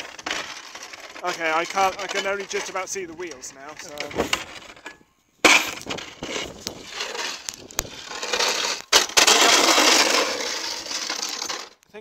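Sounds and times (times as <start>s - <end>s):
robot grinding and clattering: 0.0s - 11.8s.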